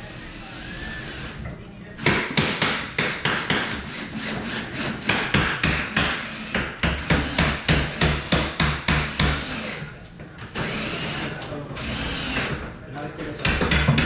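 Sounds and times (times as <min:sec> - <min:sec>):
hammering with deep thuds: 0:02.0 - 0:03.8, 0:05.0 - 0:09.5, 0:13.4 - 0:14.0.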